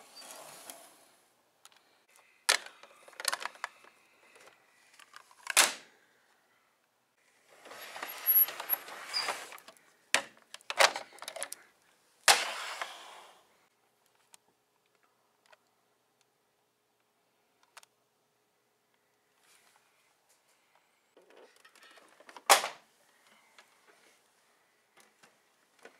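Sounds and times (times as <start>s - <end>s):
plastic toys clacking: 2.5s - 5.8s, 9.5s - 11.6s, 21.2s - 22.8s
scraping and rustling: 7.5s - 9.7s.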